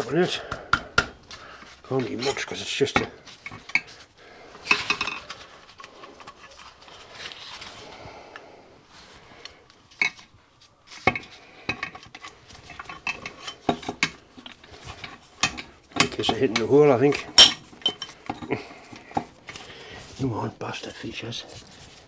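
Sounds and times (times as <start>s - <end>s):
metal clinking and scraping: 1.8s - 7.8s, 9.9s - 10.3s, 10.9s - 19.6s.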